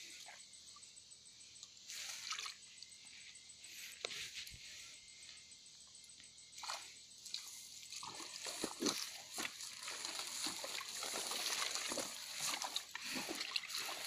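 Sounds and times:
footsteps in grass: 8.2 - 14.0.

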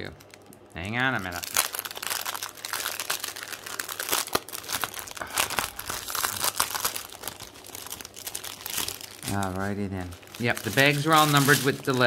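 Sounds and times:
plastic packaging crinkling: 0.0 - 12.0.

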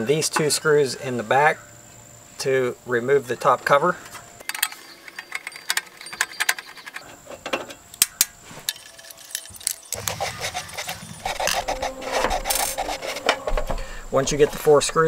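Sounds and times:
screwdriver clicks and scrapes: 8.7 - 13.4
metal housing knocks and rubbing: 9.9 - 14.6.

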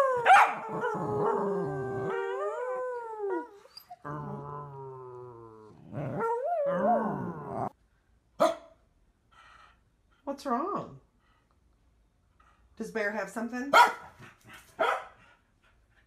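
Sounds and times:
dog howling: 0.0 - 7.7.

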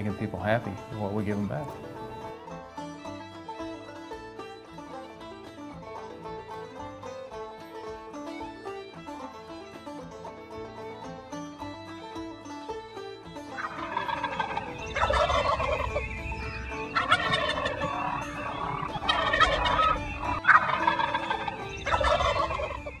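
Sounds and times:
turkey gobbling: 0.1 - 2.4, 13.5 - 23.0.

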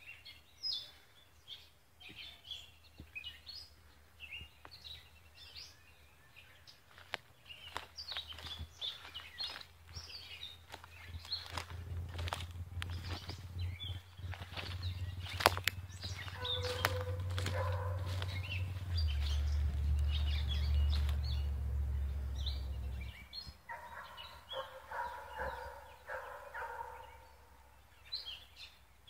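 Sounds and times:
birds chirping: 0.0 - 29.0
low steady rumble: 10.6 - 23.6.

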